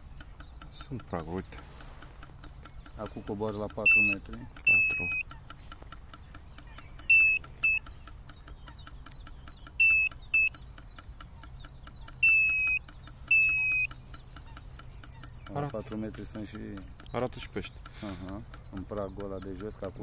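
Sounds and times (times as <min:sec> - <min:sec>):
high electronic alarm beeps: 0:03.8 - 0:05.3, 0:07.1 - 0:07.8, 0:09.8 - 0:10.5, 0:12.2 - 0:13.9.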